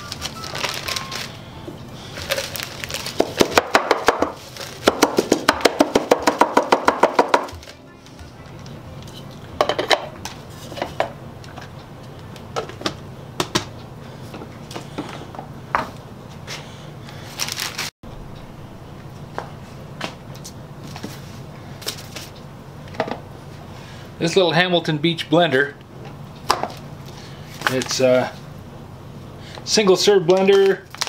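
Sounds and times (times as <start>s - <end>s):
plastic bag rustling: 0.0s - 5.4s, 17.2s - 17.9s, 30.4s - 31.0s
plastic bits rattling: 2.2s - 3.6s.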